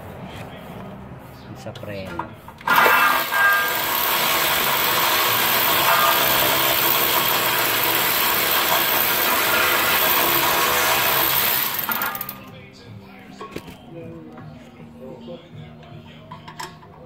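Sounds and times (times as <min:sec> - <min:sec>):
power tool running: 0:02.6 - 0:12.4.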